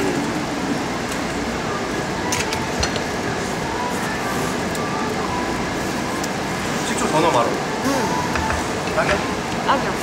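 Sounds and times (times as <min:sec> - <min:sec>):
restaurant room noise: 0:00.0 - 0:10.0
tableware clinking: 0:02.3 - 0:03.1.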